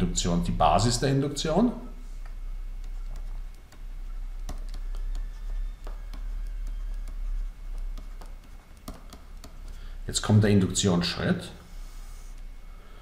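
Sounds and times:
steady low hum: 0.0s - 13.0s
stylus tapping on pen tablet: 2.8s - 9.8s.

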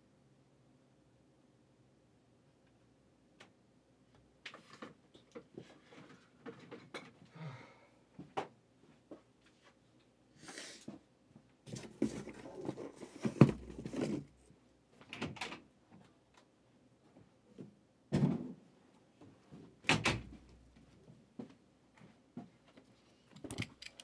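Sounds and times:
cardboard and wrap rustling: 11.7s - 14.4s.

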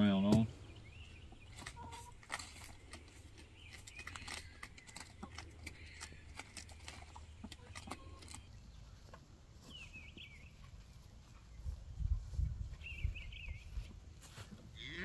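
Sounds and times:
chickens pecking taps: 0.3s - 11.4s
cow mooing: 14.8s - 15.0s.

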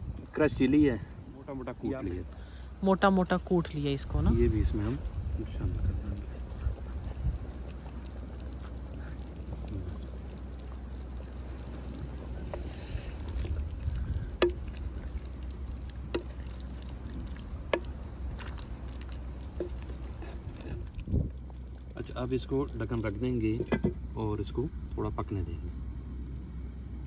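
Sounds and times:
low rumble: 3.9s - 27.0s
spoon stirring food: 12.2s - 21.5s
wooden spoon knocking pot: 14.4s - 14.7s, 16.1s - 16.4s, 23.6s - 24.0s.

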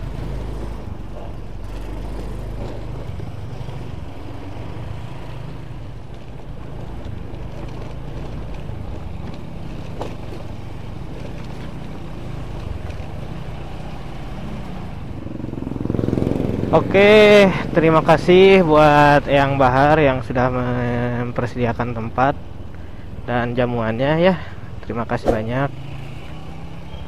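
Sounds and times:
motorcycle engine running: 14.5s - 17.5s.

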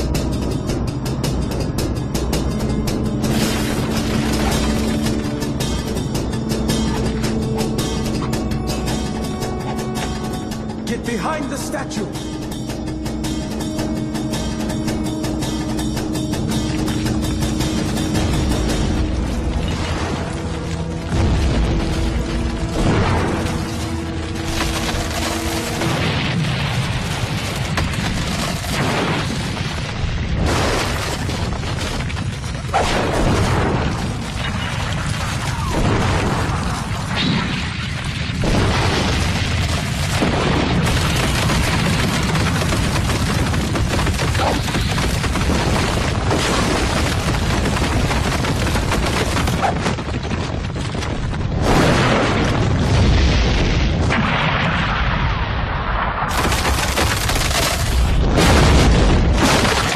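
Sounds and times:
stone crashing and breaking: 3.2s - 6.0s, 16.7s - 55.1s, 56.3s - 59.9s.

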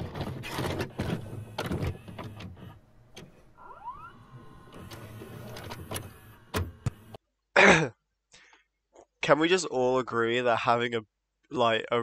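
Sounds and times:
cassette loading clicks and clunks: 0.0s - 7.2s
low motor hum: 1.0s - 7.2s
rising mechanical whine: 3.2s - 7.2s.

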